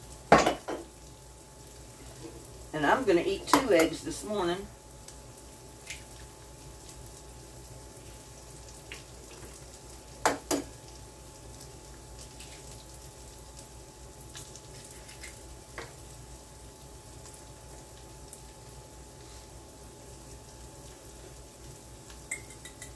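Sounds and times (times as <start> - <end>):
food sizzling in skillet: 0.0 - 22.9.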